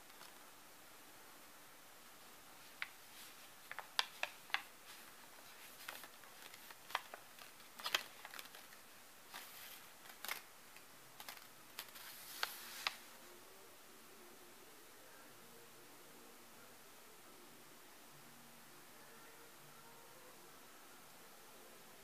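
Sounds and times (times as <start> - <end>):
foil ball clicking and crinkling: 2.7 - 10.5, 11.2 - 13.0.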